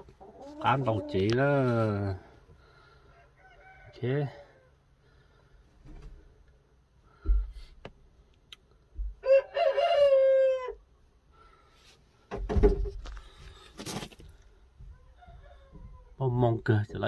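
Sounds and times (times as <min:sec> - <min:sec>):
rooster crowing: 0:03.1 - 0:04.7, 0:09.2 - 0:10.8, 0:15.0 - 0:16.1.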